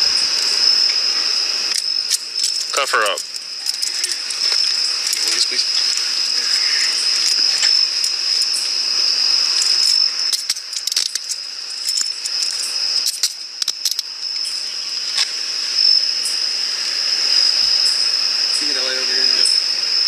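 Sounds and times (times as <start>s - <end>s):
night insects trilling: 0.0s - 20.0s
sharp clicks and rattles: 1.7s - 6.2s, 9.5s - 14.1s.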